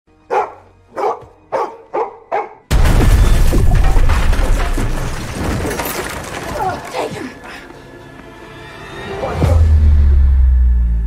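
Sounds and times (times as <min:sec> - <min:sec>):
dog barking: 0:00.3 - 0:02.7
loud crash: 0:02.7 - 0:06.4
smashing debris with deep rumble: 0:02.7 - 0:06.9.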